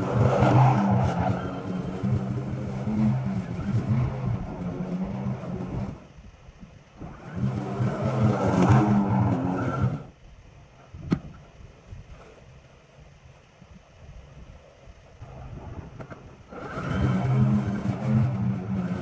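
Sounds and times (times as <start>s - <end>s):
lawn mower cutting grass: 0.0s - 6.2s, 7.0s - 10.2s, 16.5s - 19.0s.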